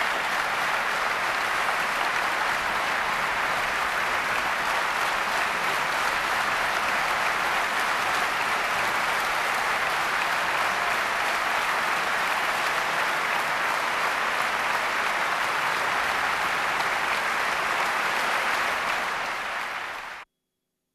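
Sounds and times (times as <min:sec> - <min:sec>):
audience applauding: 0:00.0 - 0:20.2.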